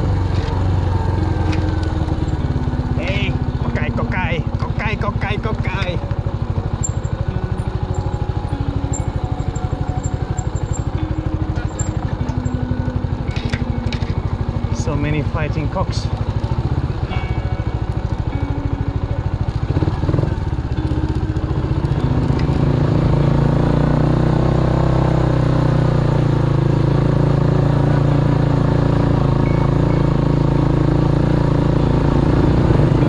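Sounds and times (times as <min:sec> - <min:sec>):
motorcycle engine running: 0:00.0 - 0:33.0.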